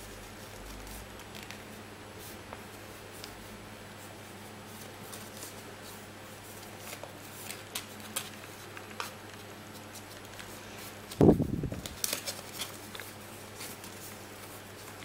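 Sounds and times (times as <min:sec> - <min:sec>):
paper rustling and crinkling: 0:00.0 - 0:03.5, 0:04.1 - 0:15.0.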